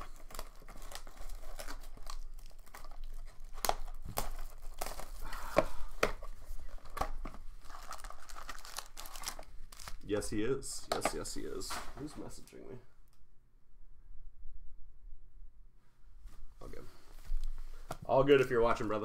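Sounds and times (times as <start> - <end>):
cardboard crackles and clicks: 0.0 - 10.0
plastic wrap crinkling and tearing: 0.0 - 10.1.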